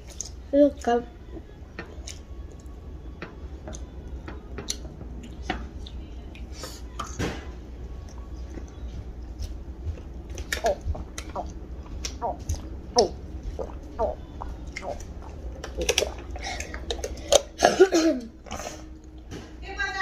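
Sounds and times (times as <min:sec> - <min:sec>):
chewing and lip smacks: 0:08.0 - 0:17.5.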